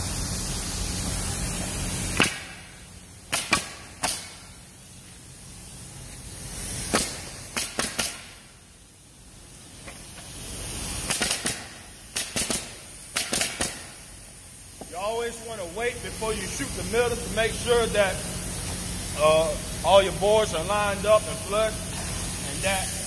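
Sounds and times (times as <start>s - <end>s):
air hiss: 0.0s - 23.0s
nail gun shots into wood: 2.2s - 2.6s, 3.3s - 4.4s, 6.9s - 8.4s, 11.1s - 13.9s.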